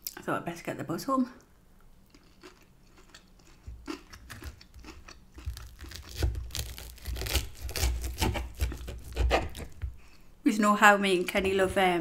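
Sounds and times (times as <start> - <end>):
crunching breaded coating: 2.1 - 10.0.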